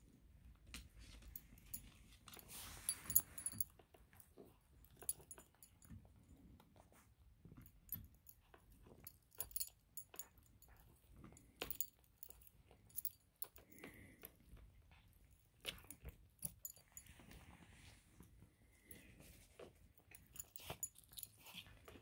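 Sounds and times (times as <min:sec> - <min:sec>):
cat chewing and crunching: 0:00.6 - 0:22.0
collar tag jingling: 0:01.2 - 0:04.3, 0:04.9 - 0:06.0, 0:07.5 - 0:14.2, 0:15.4 - 0:17.4, 0:20.0 - 0:22.0.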